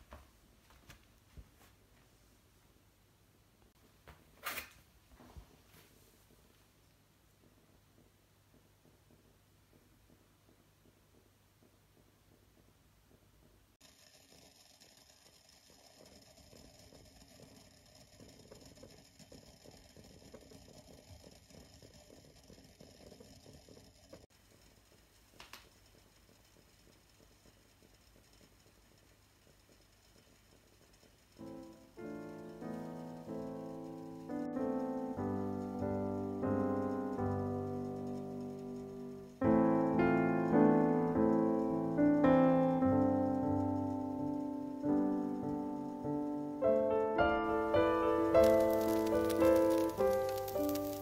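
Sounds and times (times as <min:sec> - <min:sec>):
kettle water crackling: 0:02.7 - 0:51.0
piano chords: 0:31.4 - 0:51.0.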